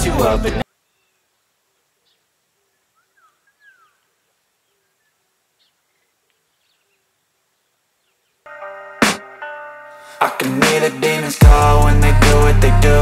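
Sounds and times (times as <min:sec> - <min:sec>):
sweeping bird calls: 0:00.6 - 0:08.6.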